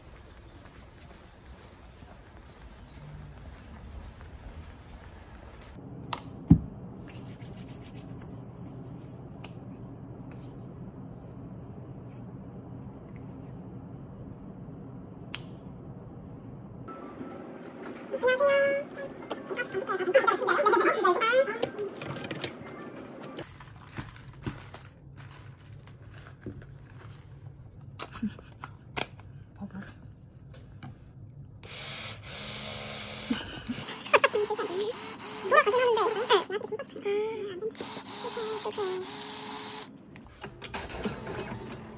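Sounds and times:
hands rubbing cream: 7.1 - 9.0.

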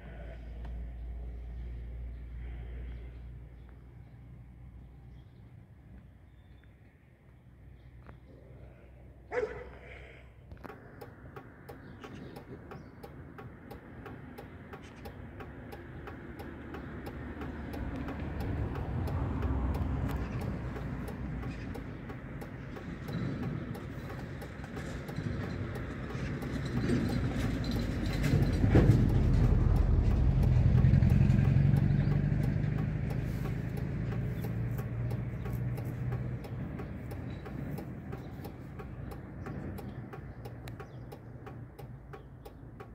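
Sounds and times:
vehicle engine passing by: 15.6 - 41.9.

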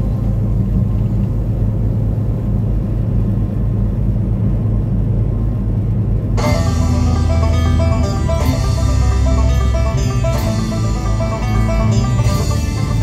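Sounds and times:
road noise: 0.0 - 13.0
truck engine drone: 0.0 - 13.0
country music with plucked strings: 6.4 - 13.0.

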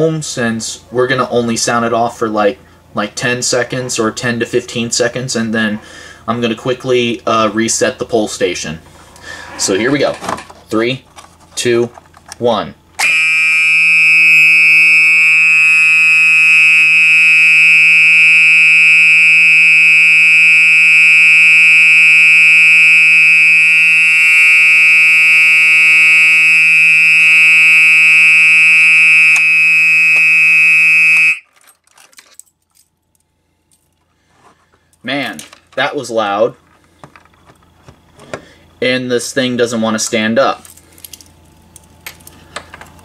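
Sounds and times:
fire alarm horn continuous tone: 13.0 - 31.6.

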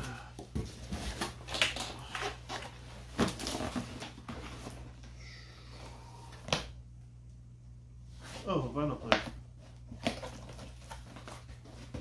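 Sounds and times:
cardboard rustling and scraping: 0.5 - 5.0, 9.6 - 12.0.

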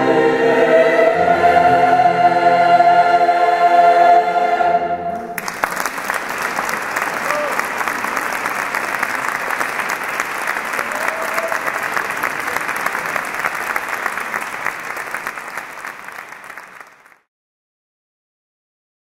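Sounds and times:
audience applauding: 5.2 - 17.3.

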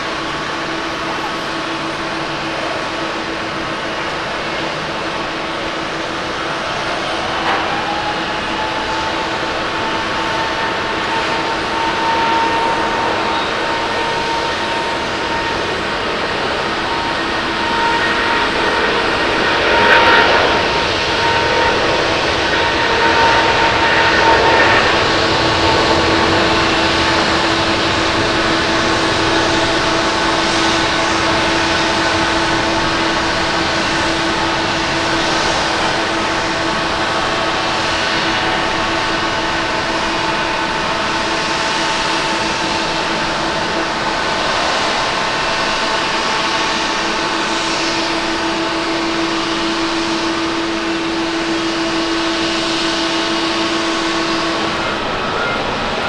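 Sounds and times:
jet engines at takeoff thrust: 0.0 - 56.0.

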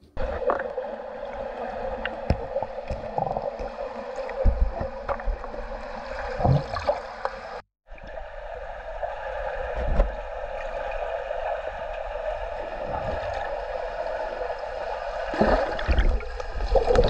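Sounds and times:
underwater watery rush: 0.2 - 17.0.

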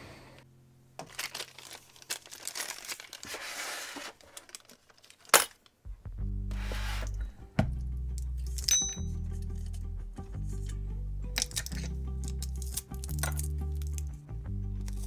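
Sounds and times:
crinkling and rustling: 1.0 - 5.8
background music: 5.8 - 15.0.

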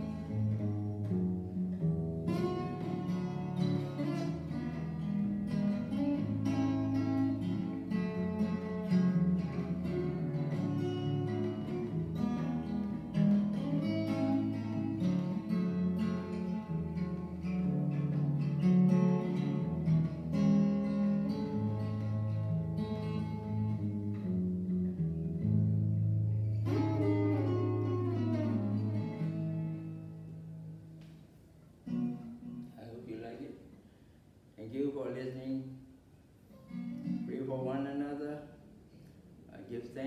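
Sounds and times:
strummed guitar chord: 0.0 - 30.7
finger-picked acoustic guitar: 0.0 - 32.9, 36.3 - 38.0.

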